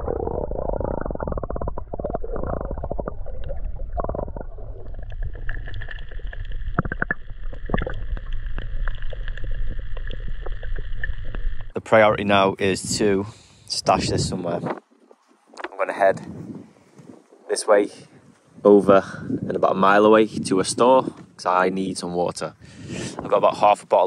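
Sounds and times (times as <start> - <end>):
underwater rumble of moving water: 0.0 - 12.2
small clicks and crackles: 5.0 - 11.8.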